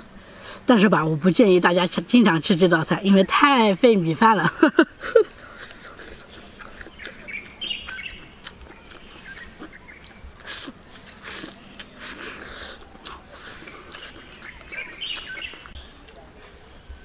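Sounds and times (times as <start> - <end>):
high-pitched insect buzzing: 0.0 - 17.0
bird chirps: 6.2 - 10.3, 13.6 - 16.0.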